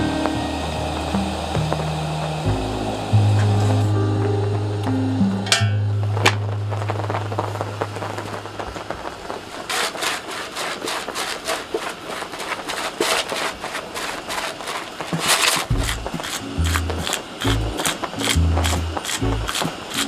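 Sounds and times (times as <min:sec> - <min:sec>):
background music note: 0:00.0 - 0:09.1, 0:15.7 - 0:20.0
spice grinder clicking: 0:09.7 - 0:20.0.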